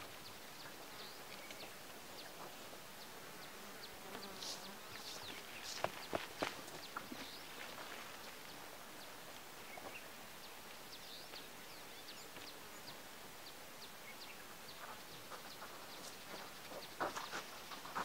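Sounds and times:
faint hiss: 0.0s - 18.0s
small birds chirping: 0.0s - 18.0s.

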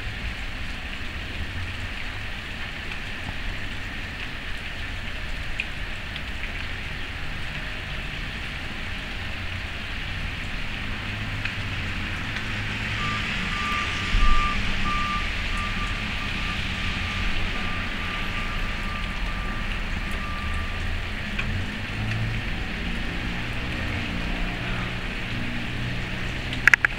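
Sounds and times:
reversing alarm beeping: 13.0s - 20.8s.

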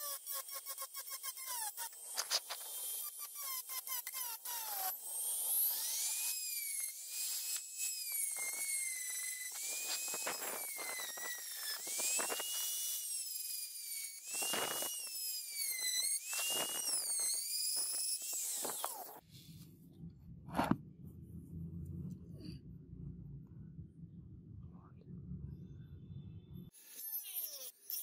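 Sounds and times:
rotary tool whining: 0.0s - 19.4s.

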